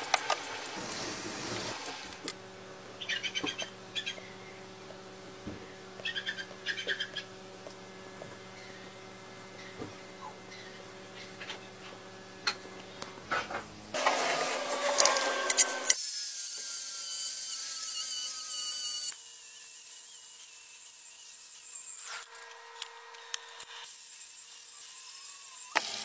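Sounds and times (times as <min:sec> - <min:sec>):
angle grinder whining: 0:14.0 - 0:19.2.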